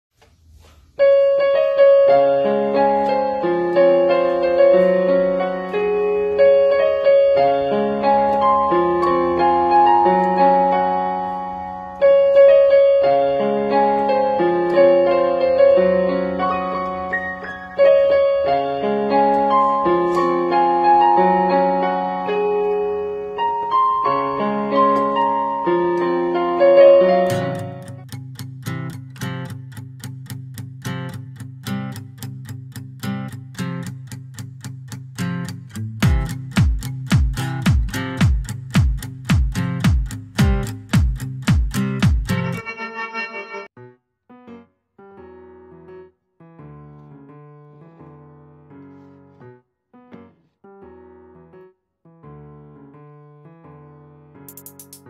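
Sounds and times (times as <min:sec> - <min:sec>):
keyboard playing piano melody: 0:01.0 - 0:29.6, 0:35.4 - 0:55.0.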